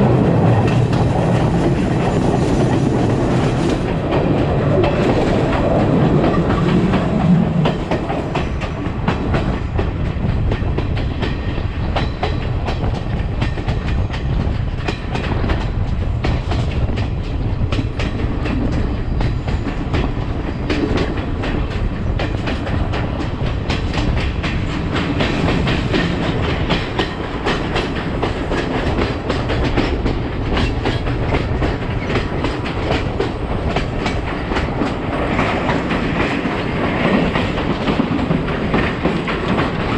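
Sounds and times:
train rumbling on track: 0:00.0 - 0:39.9
wheels clicking on rails: 0:00.0 - 0:39.9.

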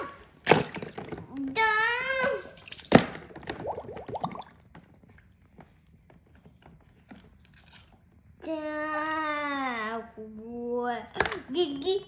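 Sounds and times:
faint water drips: 0:02.4 - 0:06.0
water bubbling and gurgling: 0:03.4 - 0:04.7.

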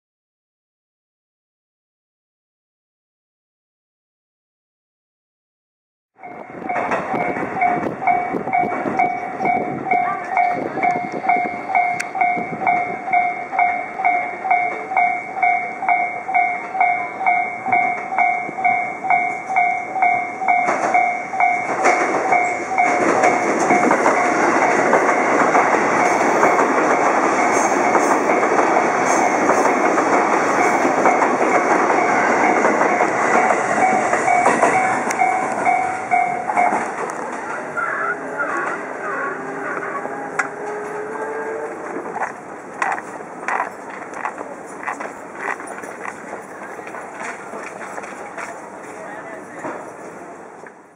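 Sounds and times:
crossing bell two-tone ding: 0:06.2 - 0:24.4, 0:30.6 - 0:36.9
electric train passing: 0:06.2 - 0:50.9.

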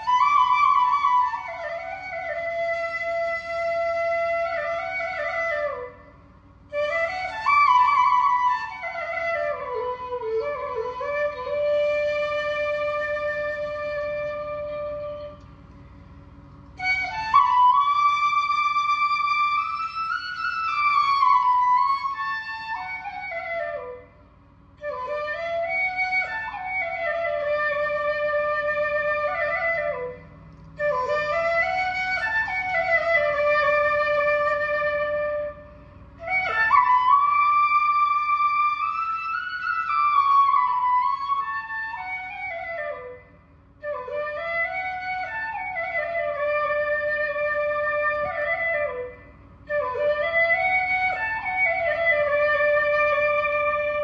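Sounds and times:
solo flute melody: 0:00.0 - 0:15.9, 0:16.6 - 0:54.0.

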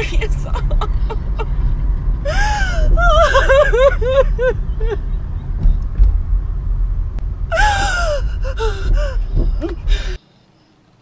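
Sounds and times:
car interior rumble: 0:00.0 - 0:10.3
woman gasping and sobbing: 0:02.2 - 0:05.0, 0:07.5 - 0:10.2.

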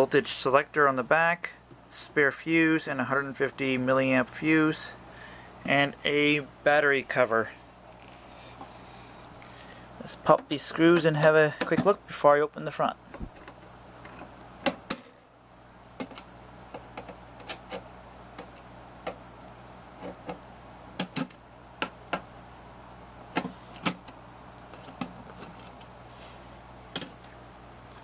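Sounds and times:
low steady hum: 0:00.0 - 0:28.0.

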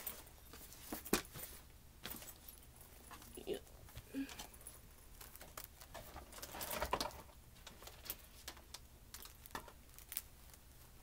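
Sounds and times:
soft rustling: 0:00.0 - 0:06.7.

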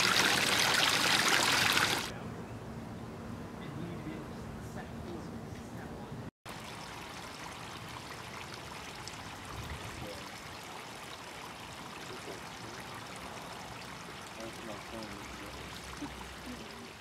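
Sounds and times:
water trickling over rocks: 0:00.0 - 0:02.1, 0:06.5 - 0:17.0.

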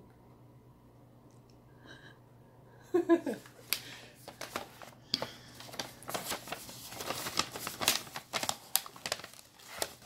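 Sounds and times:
paper bag crinkling: 0:03.6 - 0:10.0.

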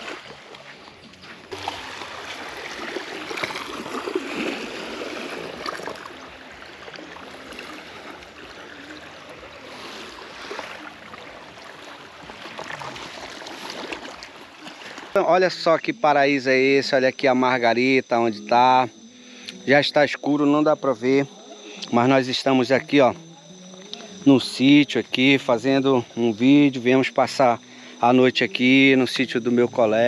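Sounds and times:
water lapping against shore: 0:00.0 - 0:17.8.

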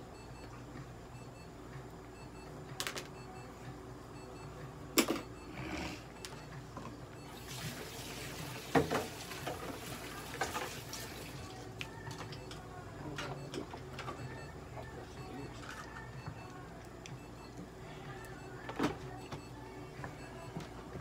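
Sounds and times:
steady low hum: 0:11.4 - 0:21.0.

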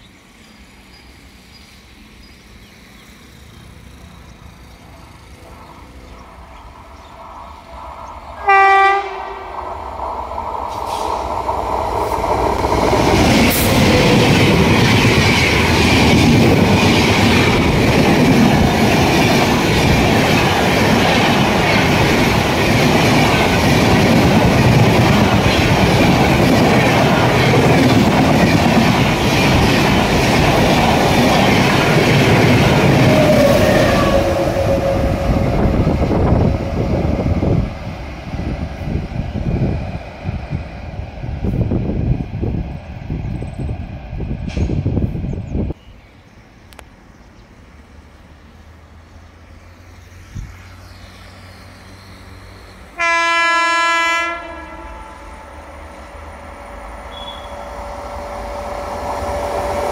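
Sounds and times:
train wheels rumbling on rails: 0:00.0 - 0:45.8, 0:46.7 - 0:59.9
locomotive horn blast: 0:08.4 - 0:09.6, 0:33.0 - 0:35.7, 0:53.0 - 0:55.8.

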